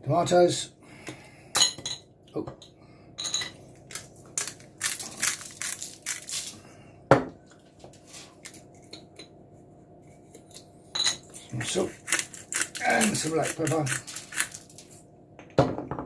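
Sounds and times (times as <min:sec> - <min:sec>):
aluminium foil crinkling: 0:03.9 - 0:06.6, 0:11.7 - 0:15.0.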